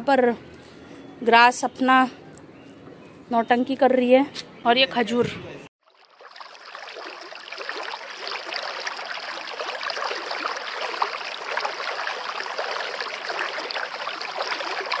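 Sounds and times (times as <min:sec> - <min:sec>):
water babbling and trickling: 0:05.8 - 0:15.0.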